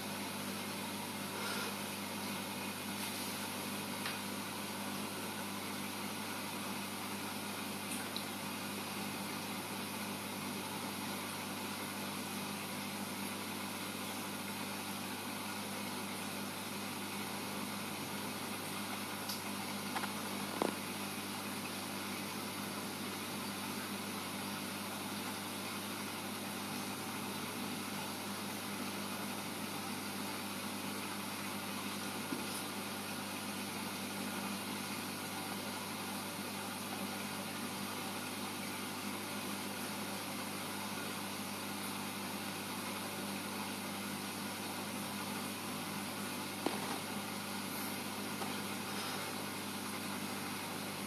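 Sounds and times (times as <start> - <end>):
aquarium pumps humming: 0.0 - 51.0.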